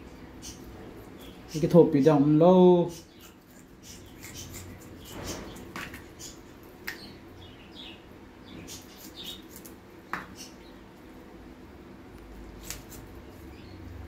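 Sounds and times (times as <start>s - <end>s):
scissors snipping wet tripe: 12.1s - 13.3s.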